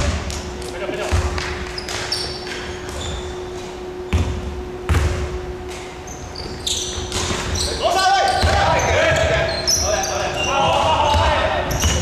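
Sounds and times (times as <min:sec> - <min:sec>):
faint steady hum: 0:00.0 - 0:12.0
basketball bouncing on wooden floor: 0:01.1 - 0:02.0, 0:04.1 - 0:05.3, 0:08.4 - 0:09.4, 0:11.1 - 0:12.0
shoes squeaking on floor: 0:01.6 - 0:05.1, 0:06.0 - 0:12.0.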